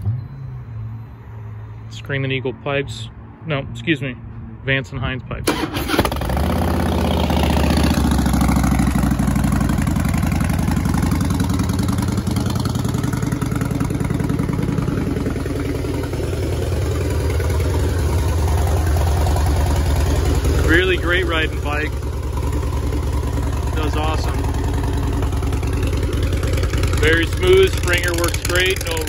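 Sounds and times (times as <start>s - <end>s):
motorcycle engine idling: 5.8s - 29.0s.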